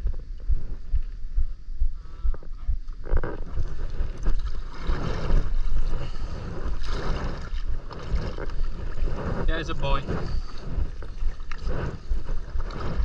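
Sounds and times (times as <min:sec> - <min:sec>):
wind buffeting microphone: 0:00.0 - 0:13.0
paddle strokes splashing in water: 0:03.2 - 0:13.0.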